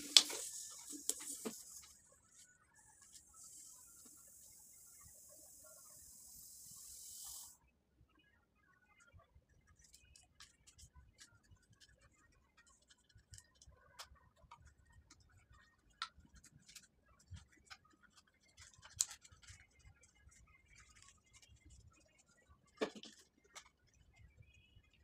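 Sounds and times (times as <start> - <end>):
plastic bottle clicks and rustling: 0.0 - 1.6.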